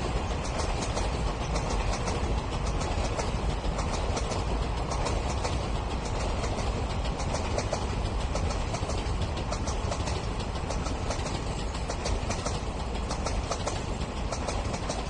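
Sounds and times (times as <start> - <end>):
distant train rumble: 0.0 - 15.0
light irregular ticks: 0.2 - 15.0.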